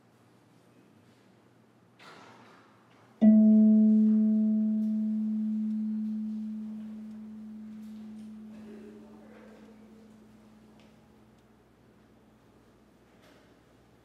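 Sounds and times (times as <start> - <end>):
low string note ringing: 3.2 - 10.6.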